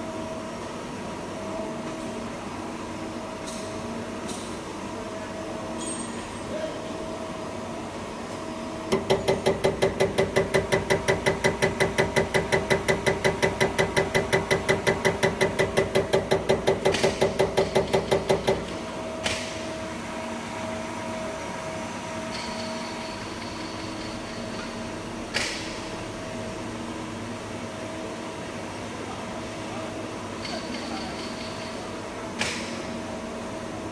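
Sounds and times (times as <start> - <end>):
test bench humming: 7.4 - 21.5.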